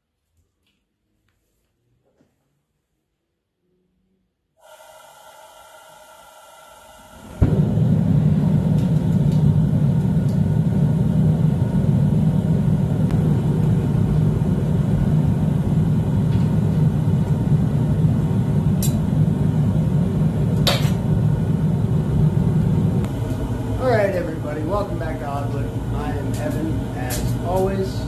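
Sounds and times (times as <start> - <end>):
forge burner roaring: 4.7 - 28.0.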